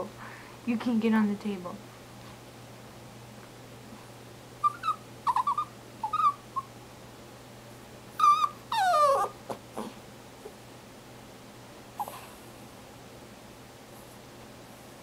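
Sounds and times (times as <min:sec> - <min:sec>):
dog squeaking and whining: 0:04.6 - 0:06.7, 0:08.2 - 0:09.6.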